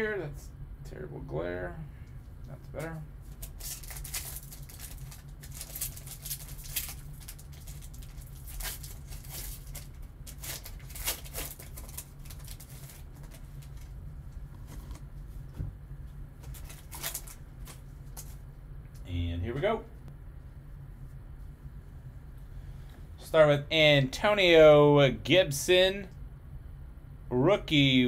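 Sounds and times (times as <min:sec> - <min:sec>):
steady low hum: 0:00.0 - 0:28.0
foil wrapper crinkling and tearing: 0:03.3 - 0:14.0, 0:16.4 - 0:18.4.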